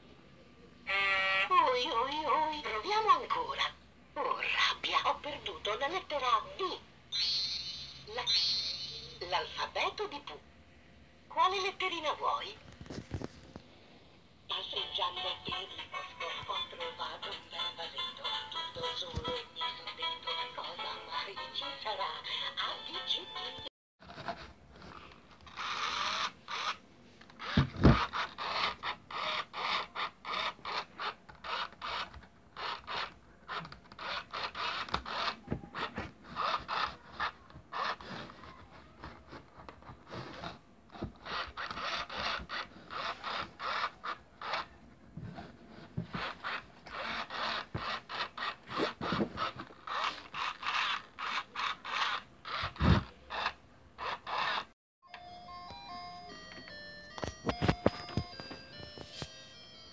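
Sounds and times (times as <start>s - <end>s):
toy motor and gears creaking: 0.9s - 3.4s, 7.2s - 10.1s, 24.8s - 44.8s, 46.1s - 54.8s.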